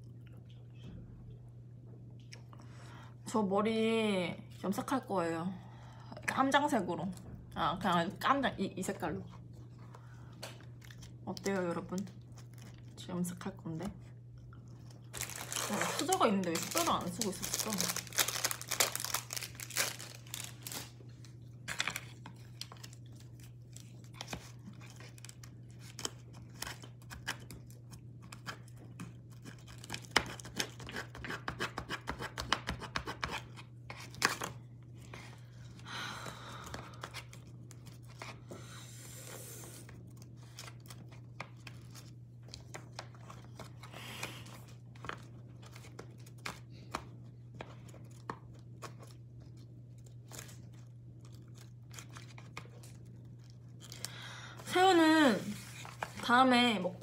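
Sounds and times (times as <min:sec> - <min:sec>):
paper wrapper rustling and tearing: 0:14.8 - 0:21.0, 0:55.4 - 0:56.3.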